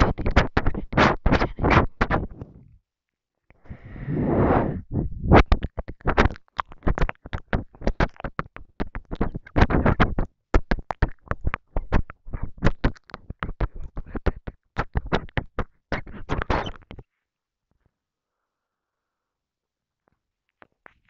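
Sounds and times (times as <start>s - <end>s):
breathy whispering: 3.5s - 6.2s
wet mouth clicks and smacks: 5.4s - 17.0s.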